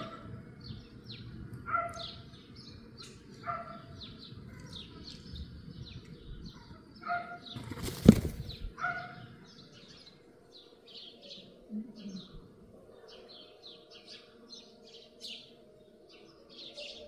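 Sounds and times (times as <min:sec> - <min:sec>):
small birds chirping: 0:00.0 - 0:17.0
rustling wing flutter: 0:07.6 - 0:08.7.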